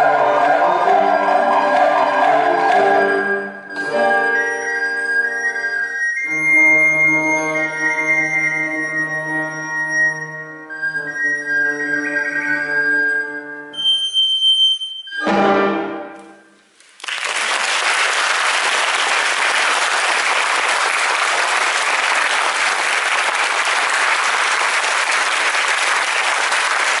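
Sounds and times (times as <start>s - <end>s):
recorder ensemble playing: 0.0s - 16.6s
audience applause: 16.9s - 27.0s.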